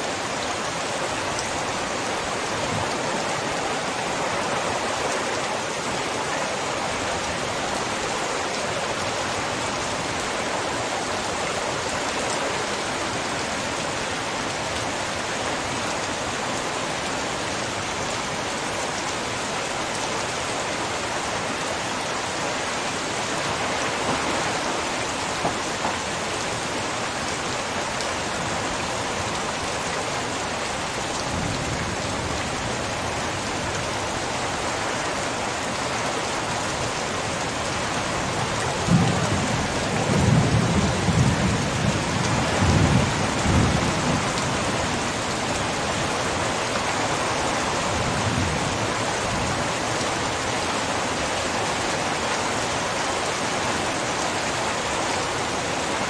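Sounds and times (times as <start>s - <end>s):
heavy rain pouring: 0.0s - 56.0s.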